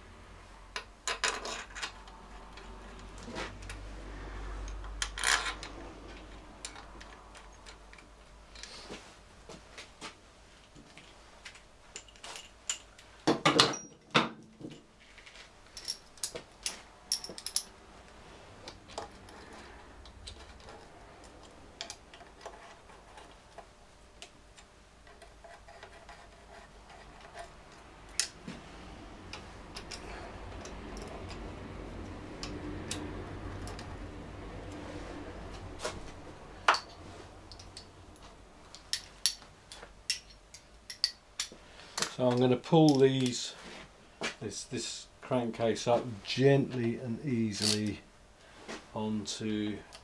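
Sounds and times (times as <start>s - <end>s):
metal bolts clicking: 38.7s - 41.5s, 47.6s - 47.9s.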